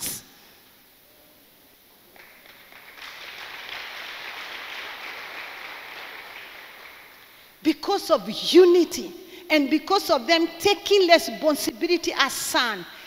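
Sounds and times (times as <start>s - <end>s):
congregation applauding: 2.1s - 7.5s.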